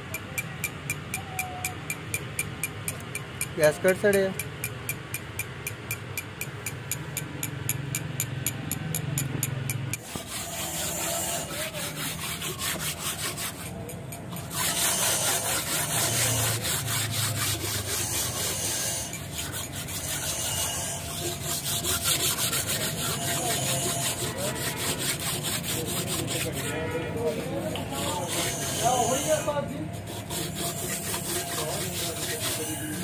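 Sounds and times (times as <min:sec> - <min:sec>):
scraping on metal surface: 0:10.0 - 0:33.0.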